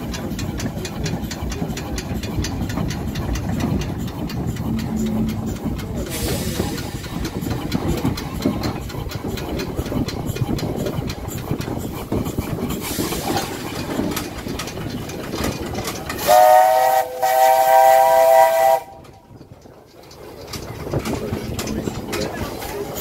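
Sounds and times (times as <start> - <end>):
locomotive wheels clicking and clanking: 0.0 - 23.0
steam whistle blasts: 16.2 - 19.0.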